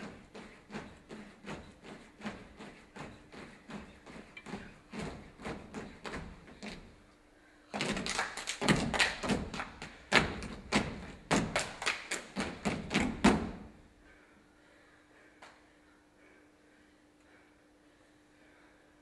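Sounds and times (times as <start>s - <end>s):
feet stamping on stage floor: 0.0s - 7.0s
faint steady hum: 0.0s - 19.0s.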